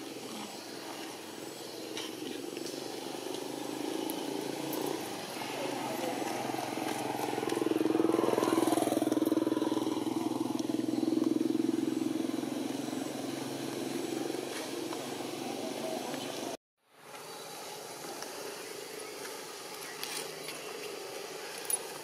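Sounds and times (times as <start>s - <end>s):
motorcycle engine running: 2.6s - 16.5s.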